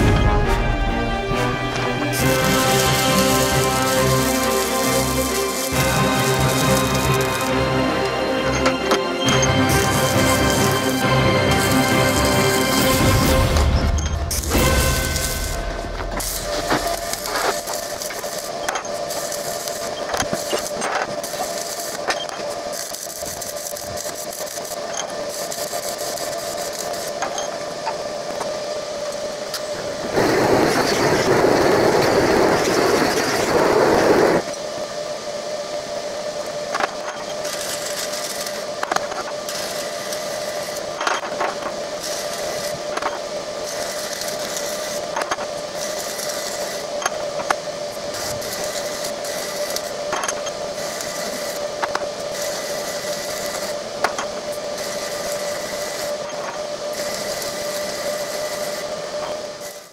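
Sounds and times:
loud rushing noise: 0.0s - 19.6s, 29.7s - 35.3s
steady hum: 0.0s - 59.9s
welding hissing bursts: 1.4s - 34.5s, 37.4s - 56.2s, 56.8s - 59.9s.

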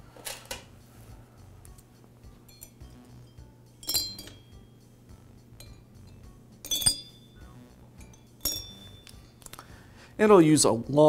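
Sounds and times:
screws clinking on metal: 2.5s - 2.9s, 3.8s - 4.4s, 5.6s - 7.2s, 8.0s - 9.3s.

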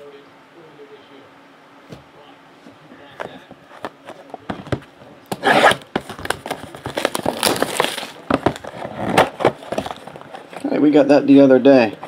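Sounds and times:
plastic wrap tearing: 5.3s - 10.7s.

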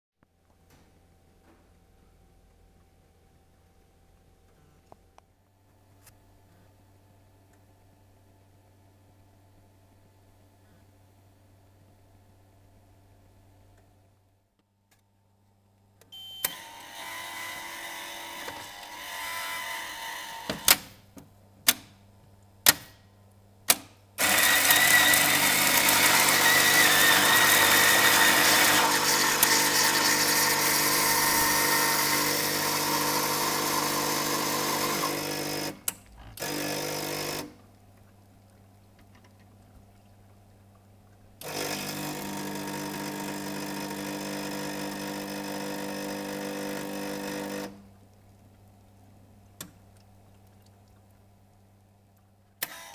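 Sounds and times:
quiet steady machine hum: 0.3s - 52.9s
brief machine whir: 16.2s - 20.8s
coffee grinder running: 24.2s - 35.8s, 41.4s - 47.7s.

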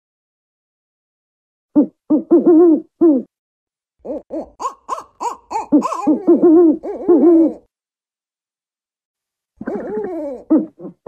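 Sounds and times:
owl hooting: 4.1s - 7.6s.

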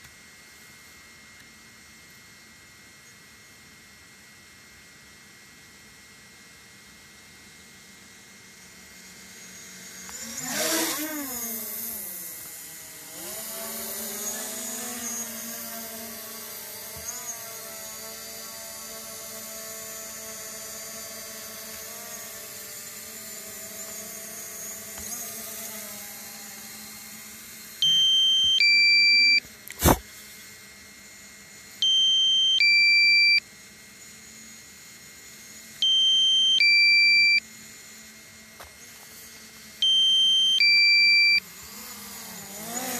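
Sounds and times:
drone propellers humming: 8.0s - 30.1s.

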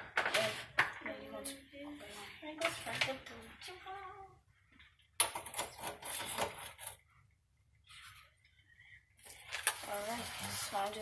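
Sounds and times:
scratchy rustling handling noise: 9.3s - 11.0s.

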